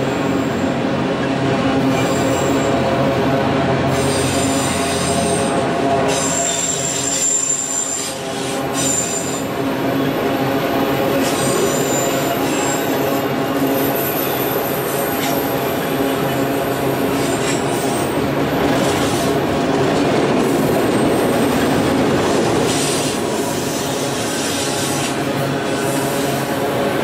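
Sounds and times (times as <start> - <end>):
train wheels rumbling on rails: 0.0 - 27.0
high-pitched wheel squeal: 6.1 - 9.5.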